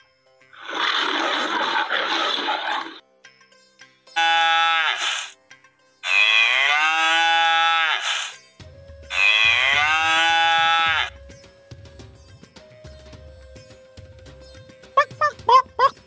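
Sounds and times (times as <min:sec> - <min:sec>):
cow mooing: 0:04.2 - 0:05.3, 0:06.0 - 0:08.1, 0:09.1 - 0:11.1
soft background music with beat: 0:08.4 - 0:10.0, 0:10.7 - 0:15.4.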